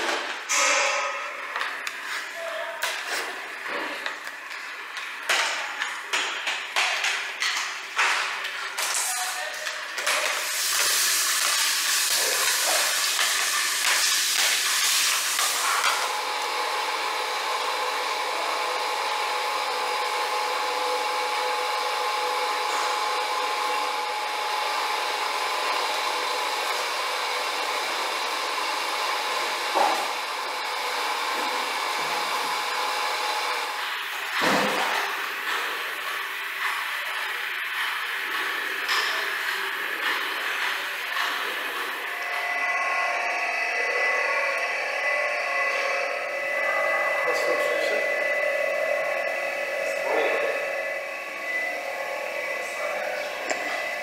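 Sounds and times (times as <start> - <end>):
machinery hiss and hum: 8.2 - 26.9, 31.0 - 54.0.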